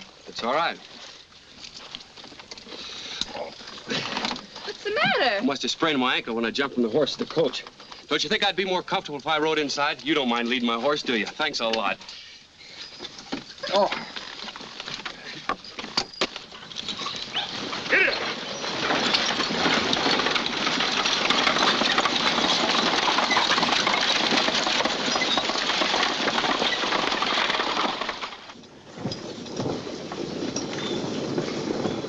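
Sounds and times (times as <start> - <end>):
rattling coach wheels: 12.7 - 32.0
galloping hoofbeats: 16.4 - 32.0.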